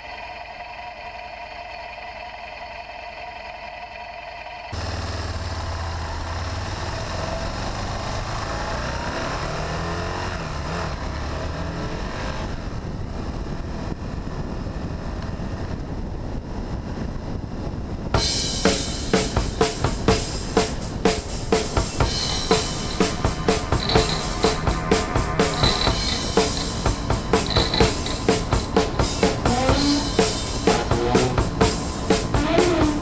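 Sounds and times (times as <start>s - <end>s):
motorcycle engine running: 4.8s - 15.6s, 18.2s - 33.0s
air rushing: 16.7s - 33.0s
drum music: 18.2s - 33.0s.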